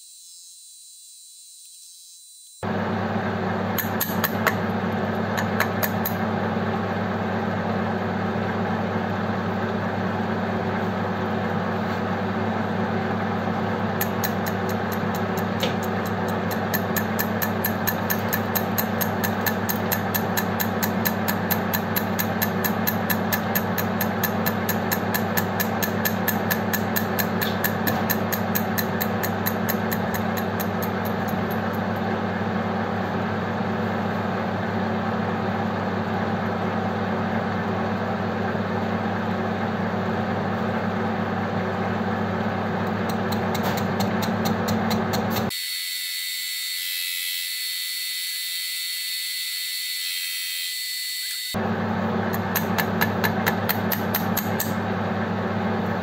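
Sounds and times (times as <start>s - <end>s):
motor hum: 0.7s - 45.5s, 51.6s - 56.0s
metal lathe cutting: 13.6s - 32.2s
fast even ticking: 14.0s - 31.8s.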